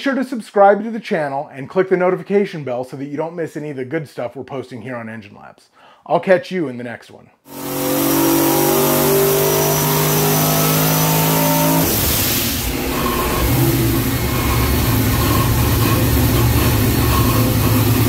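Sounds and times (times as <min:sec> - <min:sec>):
engine revving: 0:07.5 - 0:18.0.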